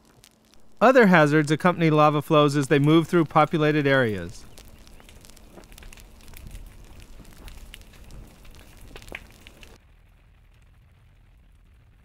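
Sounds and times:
fire crackling and popping: 0.0 - 12.0.

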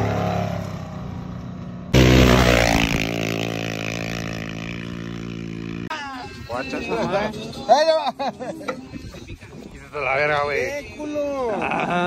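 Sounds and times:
race vehicle engine passing: 2.0 - 5.9.

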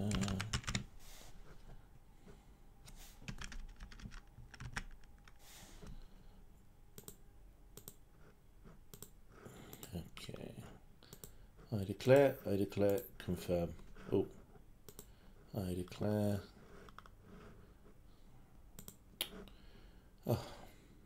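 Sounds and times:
keyboard typing clicks: 3.3 - 5.4, 7.0 - 7.2, 7.8 - 8.0, 8.9 - 9.9, 14.9 - 15.1, 18.8 - 19.0.

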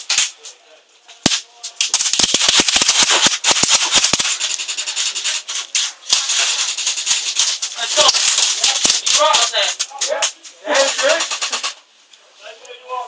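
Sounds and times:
airsoft gunfire snaps: 1.2 - 4.7
pellets rattling off surfaces: 1.8 - 11.8.

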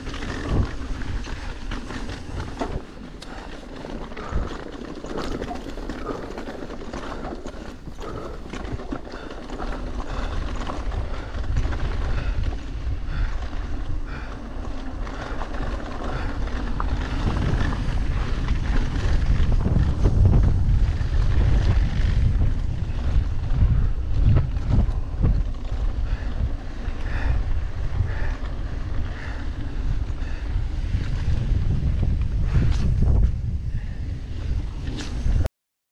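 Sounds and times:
bike rattling: 0.0 - 35.5
wind rumble on microphone: 0.0 - 35.5.

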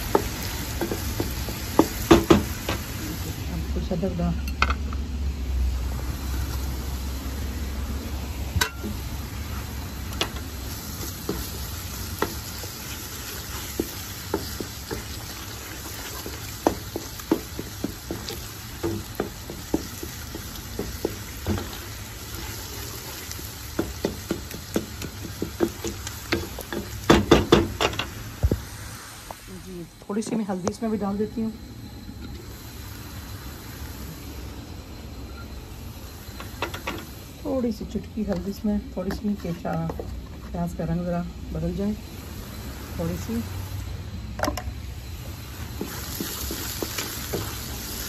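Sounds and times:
onions sizzling in oil: 0.0 - 48.0
wooden spoon scraping a pan: 10.3 - 27.1, 38.2 - 40.7, 45.7 - 48.0.

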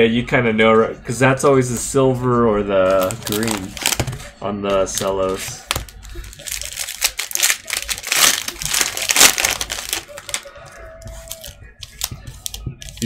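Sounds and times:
plastic wrappers crinkling: 2.9 - 13.0.

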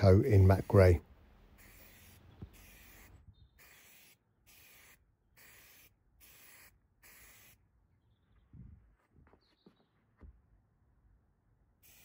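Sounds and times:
aerosol spray hisses: 1.6 - 7.6.

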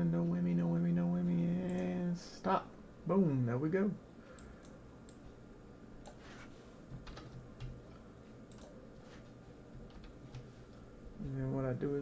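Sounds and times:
keyboard and mouse clicks: 6.9 - 8.8, 9.8 - 10.5.

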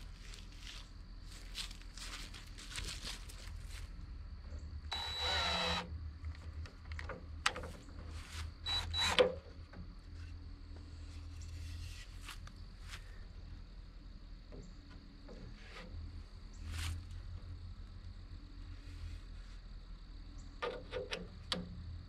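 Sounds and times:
low hum: 0.0 - 22.0
power tool whirring: 4.9 - 5.9, 8.6 - 9.3.

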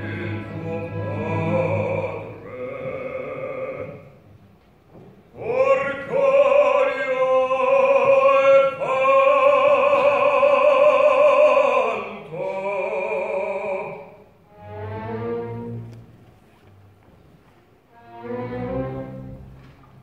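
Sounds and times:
operatic baritone singing: 0.0 - 4.2, 5.3 - 14.3.

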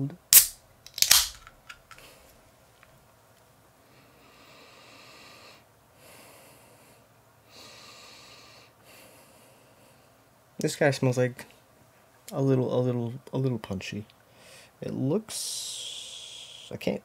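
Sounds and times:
soda can tab cracking open: 0.3 - 2.0.

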